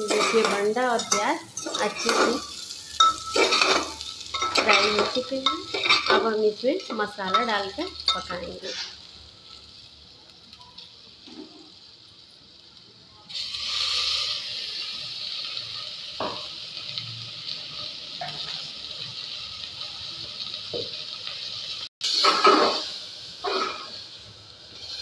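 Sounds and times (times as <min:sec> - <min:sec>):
metal spatula scraping pot: 0:00.0 - 0:09.1, 0:22.0 - 0:24.0
onion sizzling in hot oil: 0:00.0 - 0:25.0.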